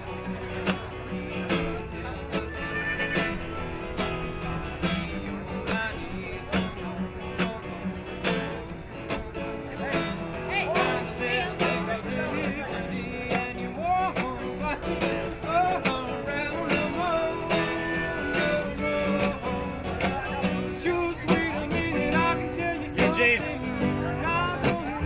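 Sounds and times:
country blues song with guitar: 0.0s - 25.0s.

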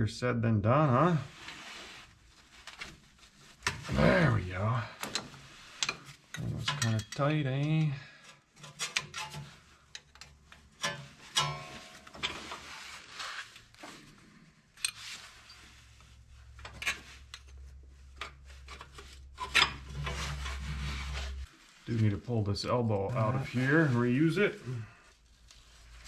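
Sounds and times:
wrenches clicking and scraping: 5.0s - 12.9s, 14.8s - 15.7s, 16.6s - 21.4s.

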